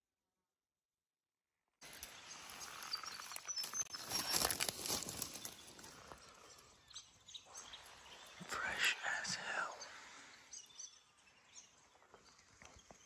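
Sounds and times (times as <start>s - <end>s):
footsteps crunching through dry leaves: 1.8s - 6.2s.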